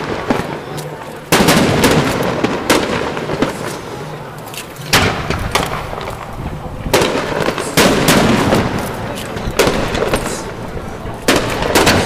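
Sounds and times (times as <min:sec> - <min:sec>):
fireworks banging with echo: 0:00.0 - 0:12.0.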